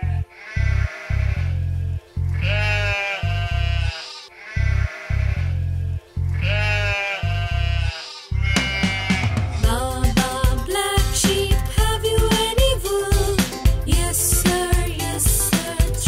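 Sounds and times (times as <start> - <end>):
background music with bass line: 0.0 - 4.0, 4.6 - 16.0
sheep bleating: 0.0 - 9.6.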